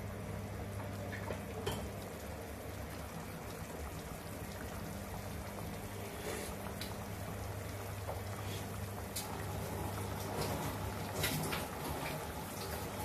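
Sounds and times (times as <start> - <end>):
low steady hum: 0.0 - 13.0
stew simmering with bubbles: 0.0 - 13.0.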